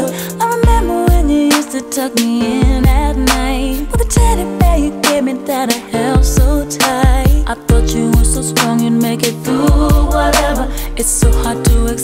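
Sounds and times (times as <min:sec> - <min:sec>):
r and b song playing: 0:00.0 - 0:12.0
kick drum beat: 0:00.6 - 0:01.4, 0:02.6 - 0:04.9, 0:06.2 - 0:08.4, 0:09.7 - 0:10.6, 0:11.2 - 0:12.0.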